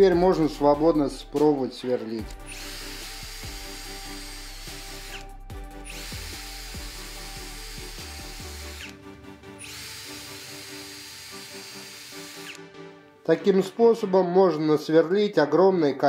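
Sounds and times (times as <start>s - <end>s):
background music: 0.0s - 16.0s
cordless drill drilling wood: 2.3s - 12.7s.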